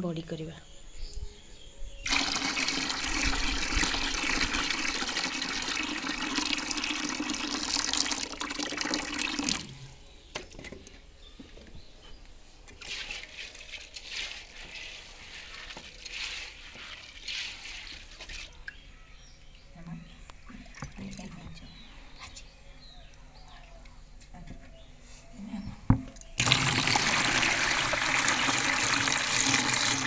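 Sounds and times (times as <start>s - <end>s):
water gushing into plastic tub: 2.0s - 9.7s, 26.4s - 30.0s
hand rubbing wet lentils: 12.8s - 18.6s.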